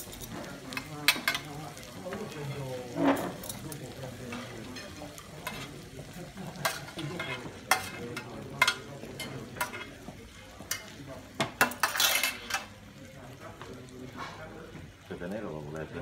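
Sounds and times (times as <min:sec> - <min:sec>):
metal utensils clinking on platter: 0:00.0 - 0:12.8
utensils scraping plates: 0:02.9 - 0:03.7, 0:06.6 - 0:10.0, 0:11.6 - 0:12.7.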